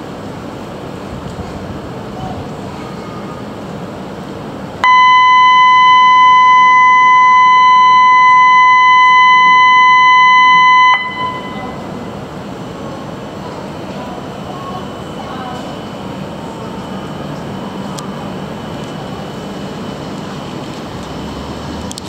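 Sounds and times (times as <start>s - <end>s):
electronic buzzer tone: 4.8s - 11.9s.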